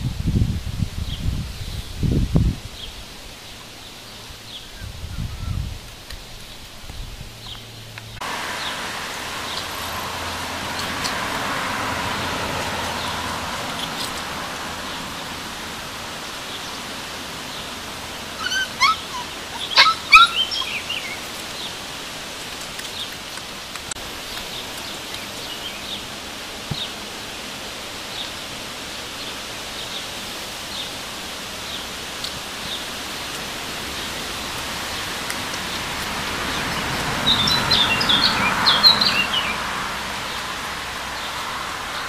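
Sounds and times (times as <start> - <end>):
steady outdoor hiss: 0.0 - 42.0
puppies squealing and yelping: 18.3 - 21.3.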